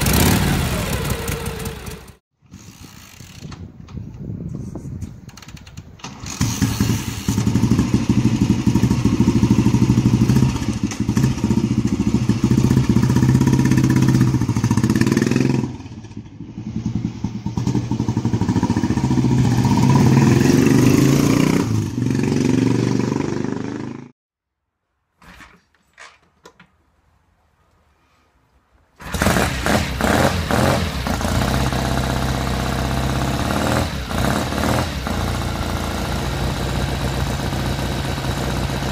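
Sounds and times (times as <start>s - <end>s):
motorcycle engine revving: 0.0s - 2.2s, 6.0s - 24.2s, 29.0s - 38.9s.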